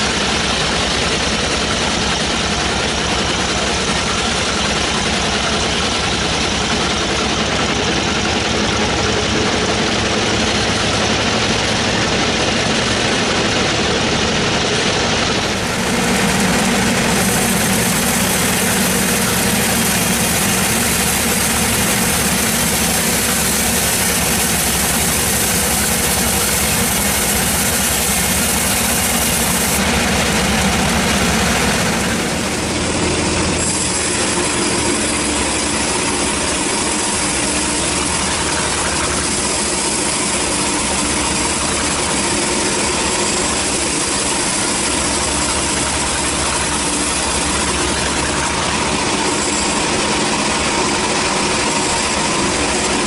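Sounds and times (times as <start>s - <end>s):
band sawmill droning: 0.0s - 53.0s
saw blade hissing: 15.4s - 36.1s.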